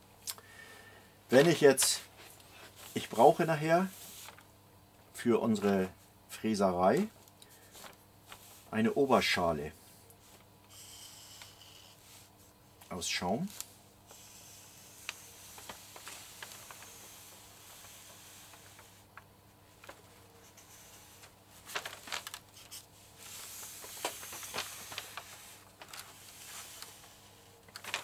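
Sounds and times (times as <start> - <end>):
paper rustling: 1.4 - 4.5, 13.4 - 19.0, 19.7 - 28.0
marker pen scratching on paper: 10.7 - 12.0.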